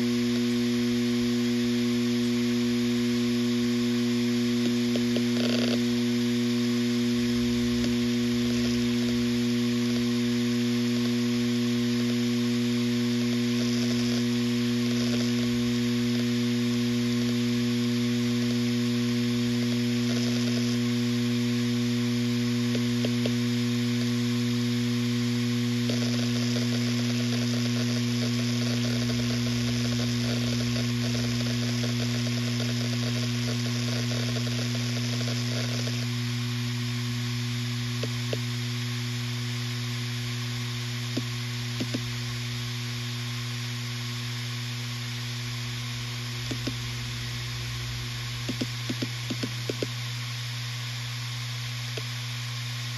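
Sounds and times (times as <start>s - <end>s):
hard drive motor hum: 0.0s - 52.9s
vibration buzz: 0.0s - 52.9s
faint hard drive ticks: 4.5s - 5.9s, 7.5s - 10.1s, 22.6s - 24.1s, 25.8s - 36.1s, 41.2s - 42.1s, 46.5s - 46.8s, 48.4s - 50.0s.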